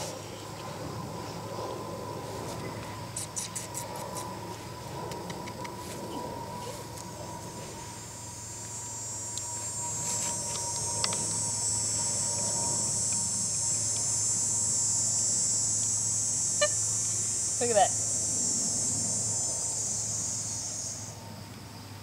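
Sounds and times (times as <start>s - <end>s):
faint low hum: 0.0s - 22.0s
insects buzzing: 0.0s - 22.0s.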